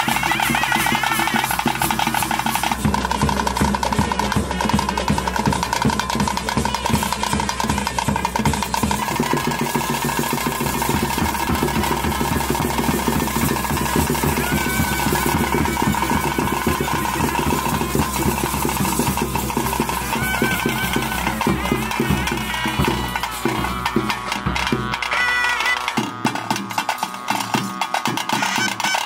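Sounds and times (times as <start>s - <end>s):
drums beating fast rhythm: 0.0s - 29.0s
high wind instrument melody: 0.0s - 29.0s.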